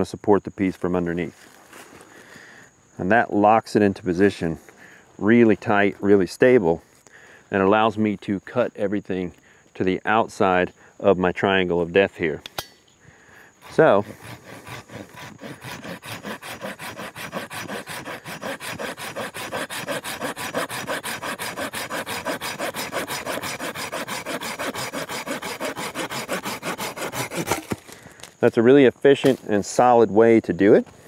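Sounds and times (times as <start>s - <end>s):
hand saw cutting wood: 13.6s - 28.0s.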